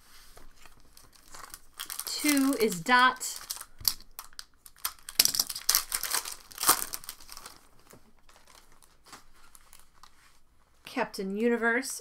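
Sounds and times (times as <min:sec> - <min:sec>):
foil wrapper crinkling: 0:00.6 - 0:10.1.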